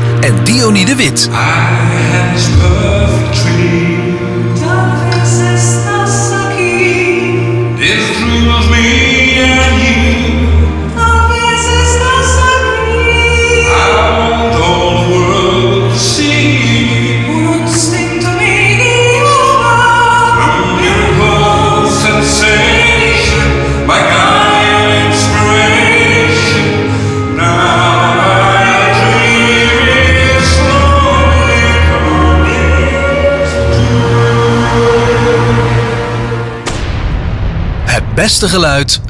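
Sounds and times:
person singing through loudspeakers: 0.2s - 3.9s.

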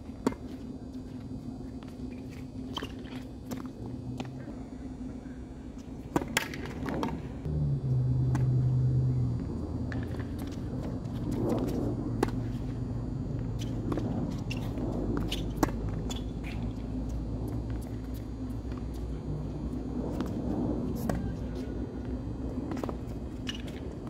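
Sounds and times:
steady low hum: 0.0s - 24.0s
loud low drone: 7.4s - 23.4s.

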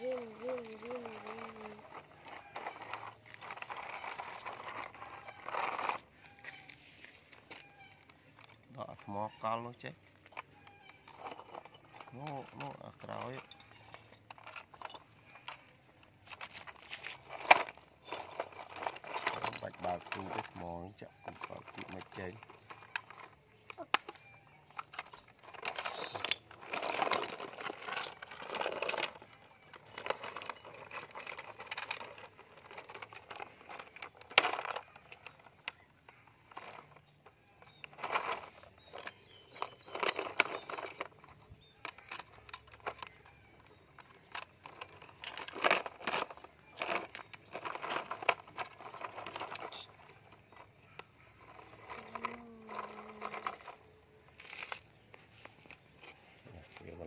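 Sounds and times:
brick chunks clattering on plastic: 0.0s - 6.2s, 9.9s - 56.1s.

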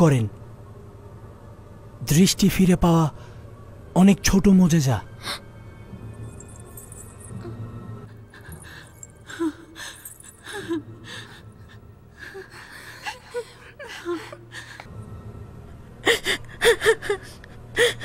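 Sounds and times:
person gasping and sobbing: 8.1s - 15.0s, 16.0s - 18.0s.

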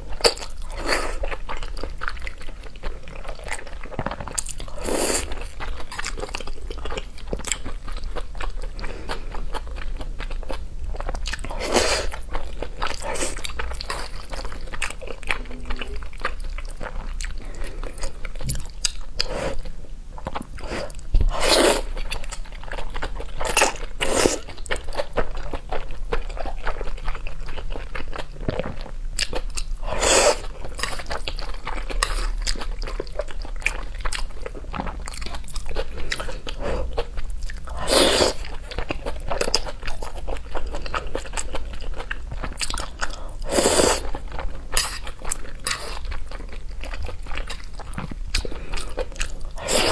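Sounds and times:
wet chewing and smacking: 0.0s - 49.9s
slurping noodles: 29.9s - 30.4s, 49.6s - 49.9s.

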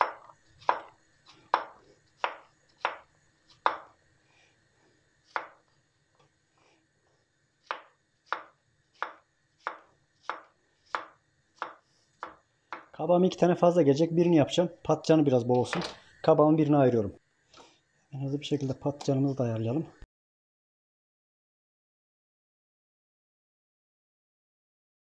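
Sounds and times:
knife chopping on wooden board: 0.0s - 4.0s, 5.3s - 5.6s, 7.6s - 13.0s.

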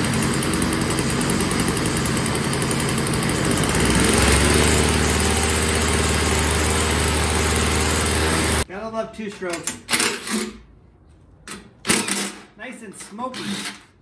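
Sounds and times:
snowblower engine running: 0.0s - 8.7s.

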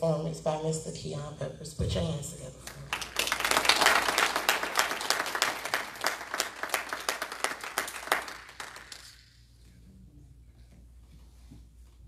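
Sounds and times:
congregation applauding: 2.9s - 9.3s.

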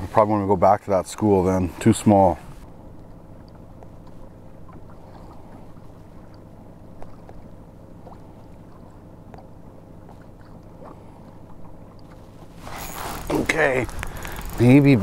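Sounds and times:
steady low hum: 0.0s - 15.0s
faint ticks: 13.9s - 14.8s.

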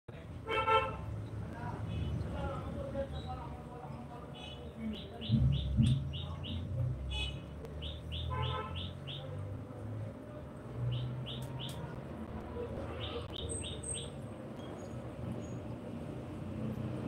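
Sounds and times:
bird chirping: 3.1s - 9.5s, 10.8s - 12.0s, 12.6s - 15.8s.

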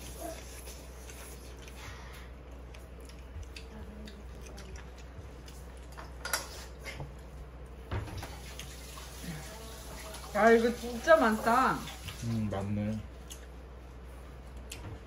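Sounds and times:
soft chewing: 0.0s - 7.8s, 12.9s - 15.0s.

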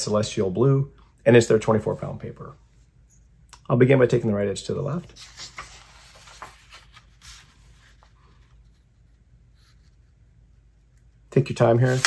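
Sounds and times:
paper rustling and sliding: 4.9s - 10.0s, 11.5s - 12.0s.

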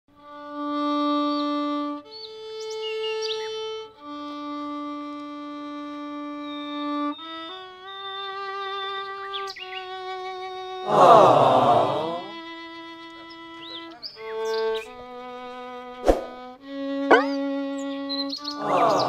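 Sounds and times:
bowed violin melody: 0.1s - 19.0s.

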